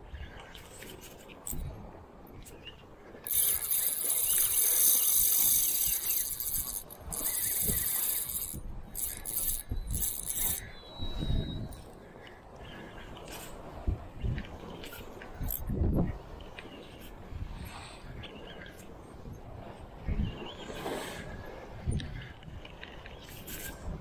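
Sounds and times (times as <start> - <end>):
fishing reel drag buzzing: 1.5 - 1.7, 3.2 - 10.8, 15.4 - 15.6.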